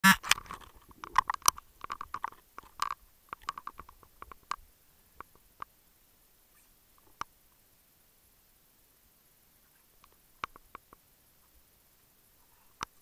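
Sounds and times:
small clicks and pops: 0.1 - 5.8, 7.0 - 7.4, 10.0 - 11.6, 12.7 - 13.0.

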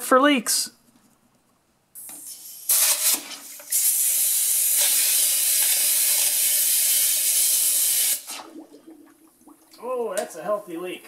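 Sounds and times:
air hissing from inner tube: 2.0 - 8.4.

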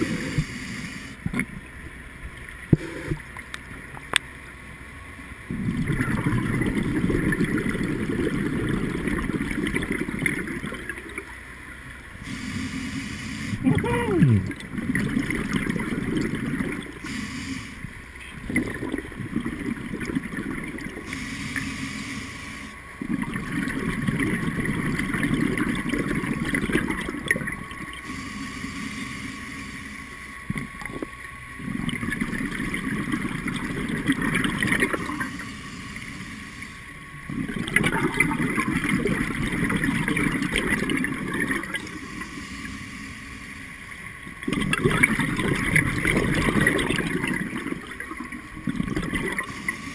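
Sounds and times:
regulator inhalation hiss: 0.0 - 1.2, 12.2 - 13.6, 17.0 - 17.9, 21.0 - 22.8, 28.0 - 30.1, 35.2 - 36.8
exhaled bubbles gurgling underwater: 0.0 - 4.2, 5.4 - 49.9.

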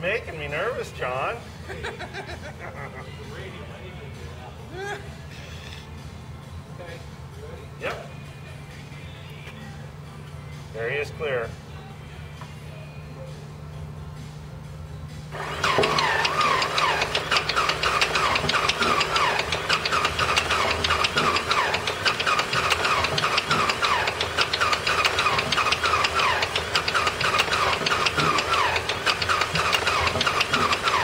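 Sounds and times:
radial aircraft engine running: 13.2 - 31.0.

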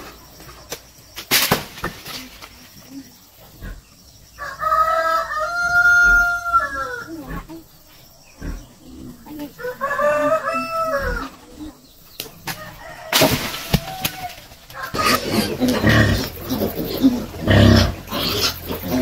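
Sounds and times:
rooster crowing: 4.3 - 7.2, 9.6 - 11.4, 12.4 - 16.4.

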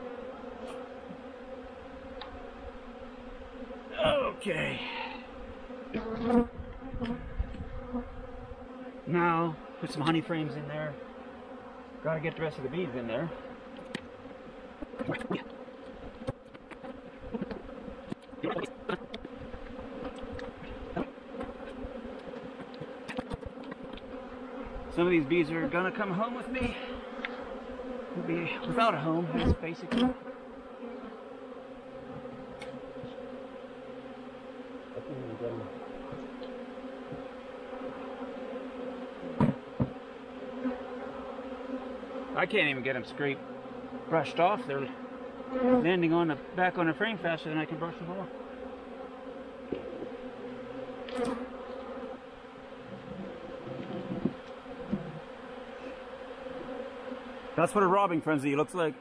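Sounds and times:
bee flying past close by: 0.0 - 58.4
honeybees buzzing: 0.0 - 59.0
short thumps: 39.3 - 40.0, 53.0 - 55.2.

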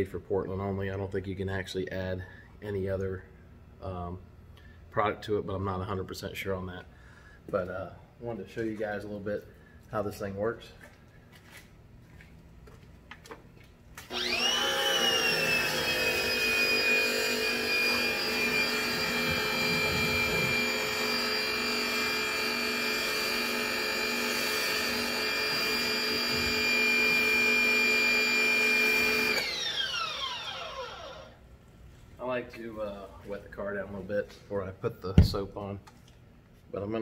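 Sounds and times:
pressure washer motor whining: 14.0 - 31.4.

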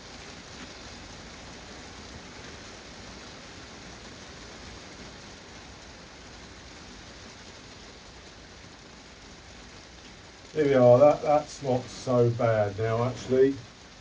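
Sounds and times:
heavy rain on a greenhouse roof: 0.0 - 14.0.

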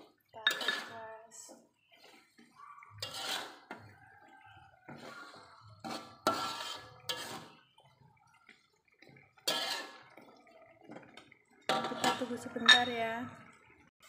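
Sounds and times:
metal spatula scraping wok: 0.4 - 4.0, 4.8 - 7.7, 9.3 - 10.2, 11.7 - 13.0.

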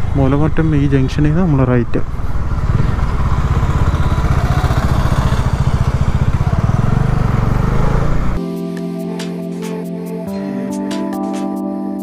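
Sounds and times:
motorcycle engine running: 0.0 - 8.4.

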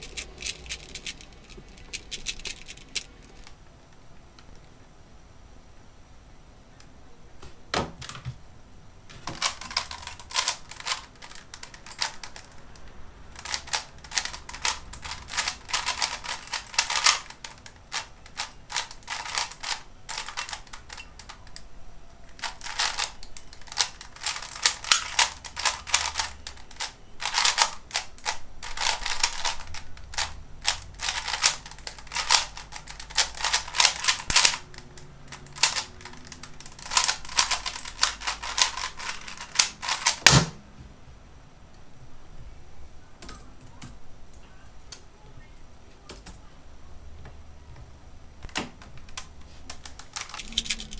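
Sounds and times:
plastic puzzle cube clicking: 9.4 - 21.7, 22.4 - 40.3.

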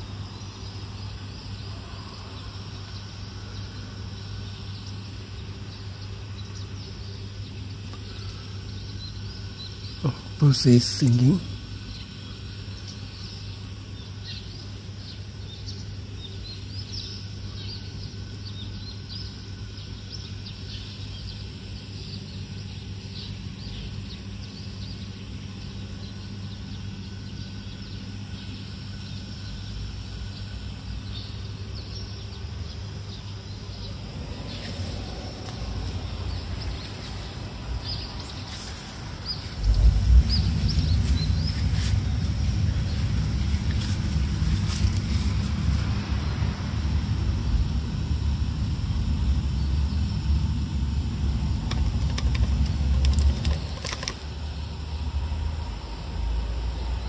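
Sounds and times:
small birds chirping: 0.0 - 54.9
steady low hum: 0.0 - 57.0
loud low rumble: 29.6 - 57.0.

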